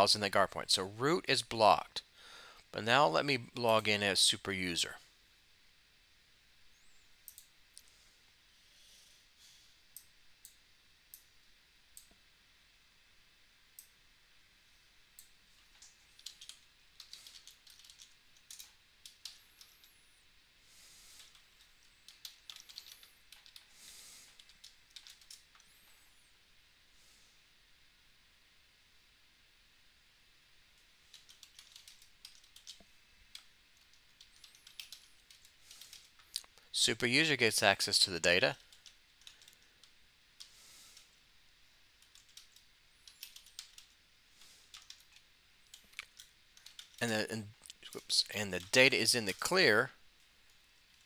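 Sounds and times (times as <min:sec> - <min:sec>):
computer keyboard typing: 0:15.2 - 0:20.0, 0:21.2 - 0:25.6, 0:31.1 - 0:36.3, 0:42.0 - 0:43.9, 0:44.6 - 0:47.1, 0:47.9 - 0:49.5.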